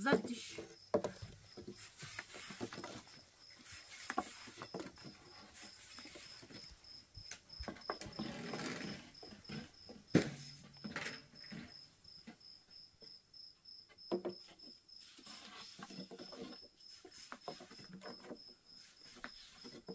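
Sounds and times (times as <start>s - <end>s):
knocks and rustles: 0.0s - 12.9s, 13.9s - 19.9s
cricket chirping: 0.0s - 15.2s.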